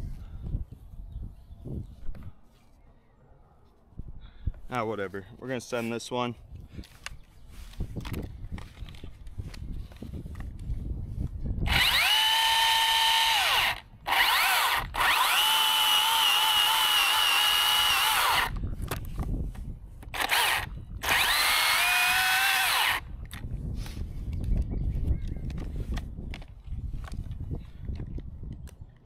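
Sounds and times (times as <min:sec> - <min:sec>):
chainsaw cutting wood: 0:11.6 - 0:18.6, 0:20.0 - 0:23.1.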